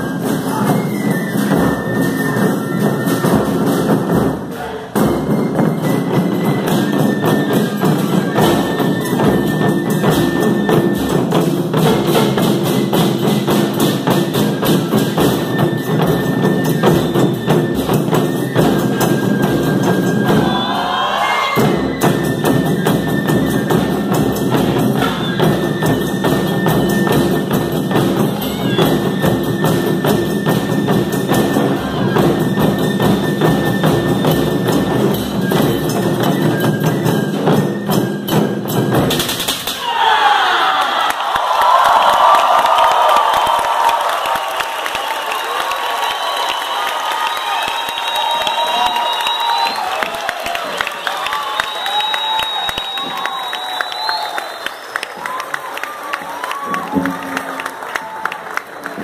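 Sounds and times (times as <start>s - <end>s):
large drum ensemble: 0.0s - 59.0s.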